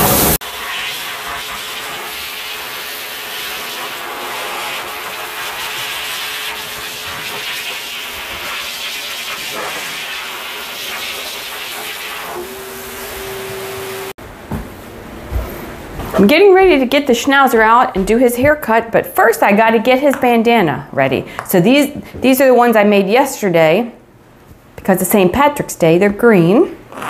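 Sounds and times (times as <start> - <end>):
dog blow dryer rushing hiss: 0.0 - 14.2.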